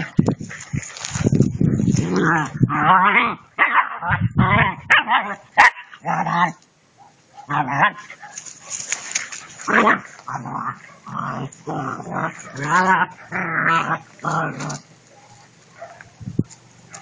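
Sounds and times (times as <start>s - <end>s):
puppies growling: 7.4s - 16.0s.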